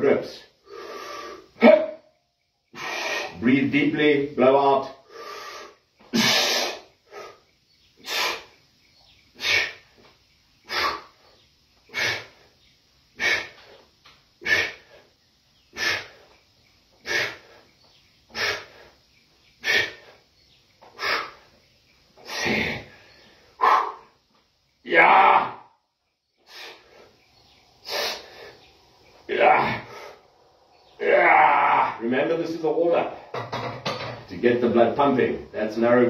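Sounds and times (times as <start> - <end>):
man blowing out forceful breaths: 2.7 - 3.4, 5.0 - 8.6, 9.3 - 10.0, 10.6 - 11.3, 11.9 - 15.1, 15.7 - 16.4, 17.0 - 20.3, 20.9 - 21.6, 26.4 - 28.6.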